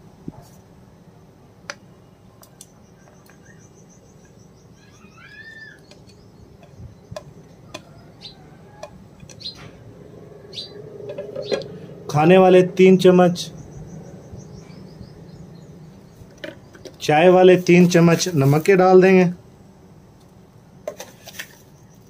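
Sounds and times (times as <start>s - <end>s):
bird chirping: 1.8s - 18.0s.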